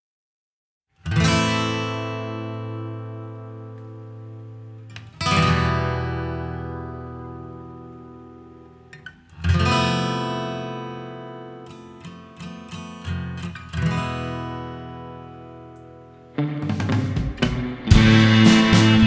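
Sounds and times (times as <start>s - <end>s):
acoustic guitar strumming: 1.0s - 19.0s.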